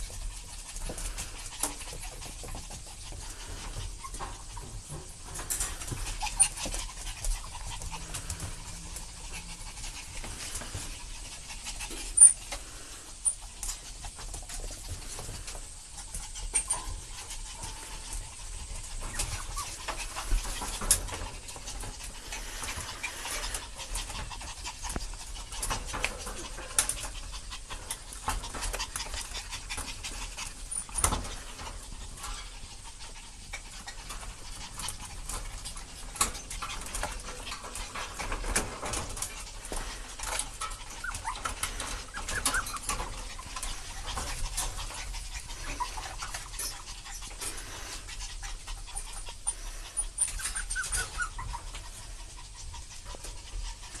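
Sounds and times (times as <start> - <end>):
dogs panting: 0.0 - 54.0
paws scrabbling: 0.0 - 54.0
puppy whimpers: 40.3 - 47.3, 48.4 - 52.0.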